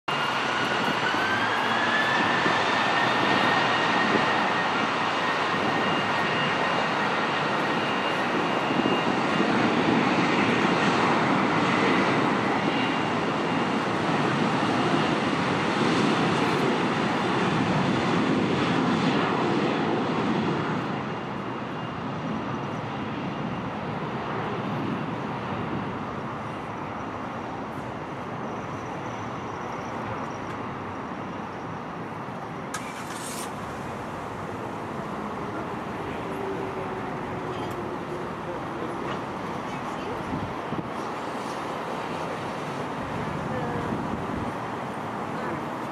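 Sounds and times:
jet engines spooling up: 0.1 - 18.4, 32.7 - 45.9
steady jet engine noise: 0.1 - 45.9.

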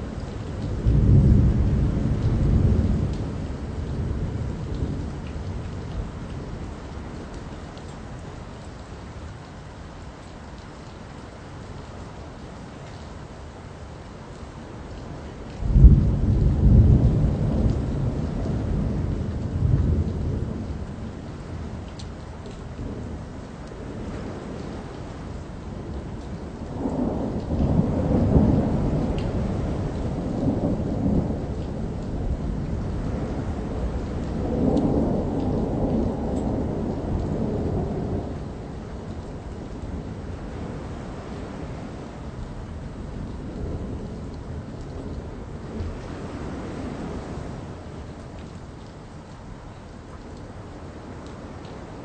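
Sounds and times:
thunder crack and rumble: 0.0 - 7.9, 14.9 - 51.9
steady rain: 0.0 - 52.0.

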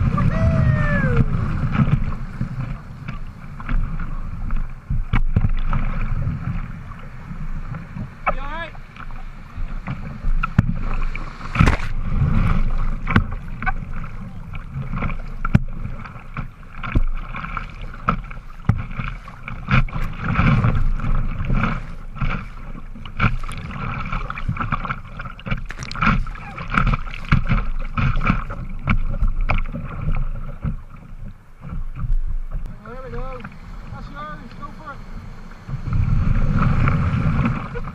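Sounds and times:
sharp splashes and knocks: 0.0 - 7.0, 7.7 - 32.7
water splashing around kayak: 0.0 - 37.9.

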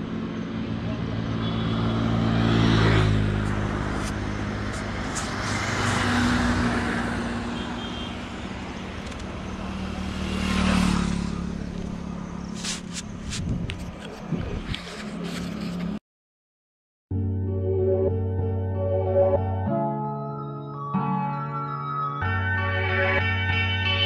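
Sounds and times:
vehicles passing close: 0.0 - 16.0.

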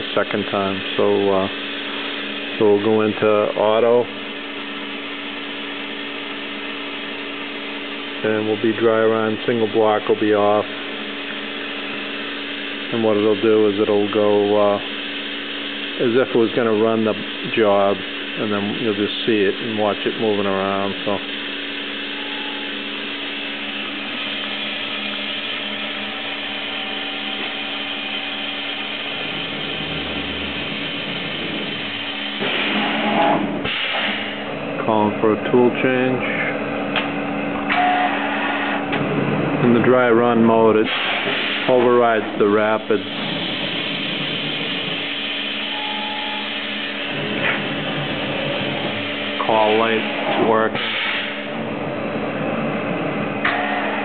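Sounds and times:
machine whirring and hissing: 0.0 - 54.0.

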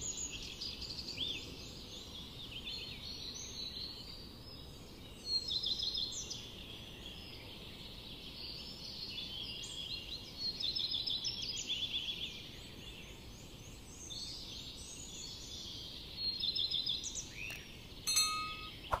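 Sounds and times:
birds chirping and trilling: 0.0 - 19.0
click and ringing chime effect: 18.1 - 19.0.

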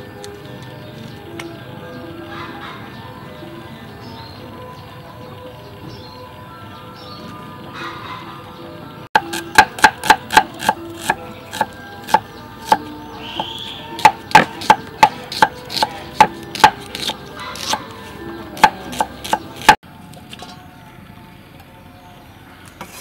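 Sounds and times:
cleaver knocking on wooden board: 14.0 - 17.1.

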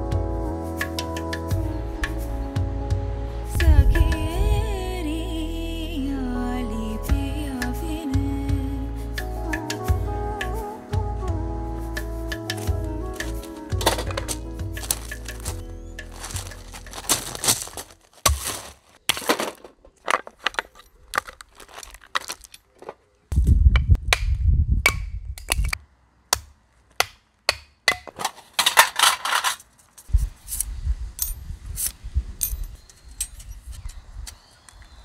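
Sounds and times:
footsteps crunching on gravel: 13.2 - 23.1
knife chopping kindling on wood: 18.2 - 19.5.

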